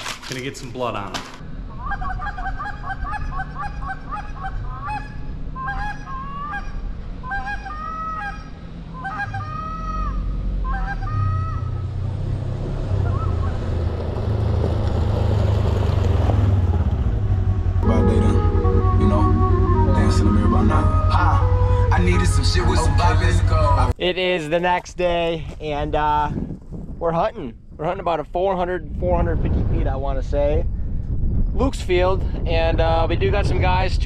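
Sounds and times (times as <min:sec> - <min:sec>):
geese honking: 0:01.7 - 0:12.0, 0:12.9 - 0:13.9, 0:17.8 - 0:23.9
low steady rumble: 0:13.1 - 0:24.1.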